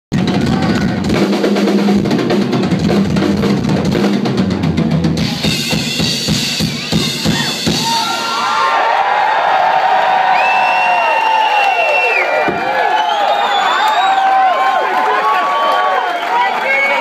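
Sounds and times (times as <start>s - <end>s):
drum kit solo: 0.1s - 8.7s
crowd cheering and whistling: 5.2s - 17.0s.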